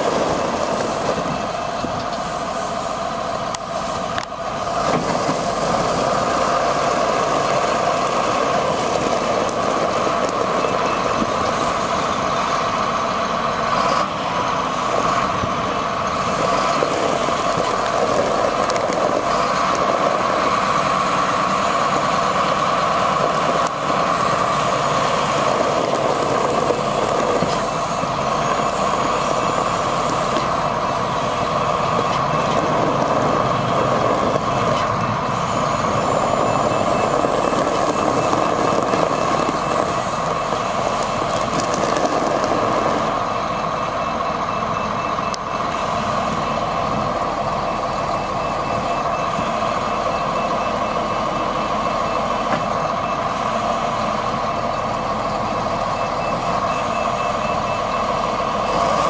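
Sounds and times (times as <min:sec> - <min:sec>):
diesel engine running: 0:00.0 - 0:59.0
backup alarm beeping: 0:16.3 - 0:53.8, 0:54.7 - 0:59.0.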